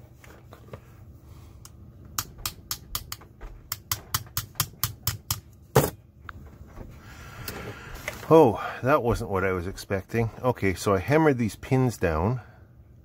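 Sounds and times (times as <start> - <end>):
hammer taps on metal pins: 2.2 - 5.5.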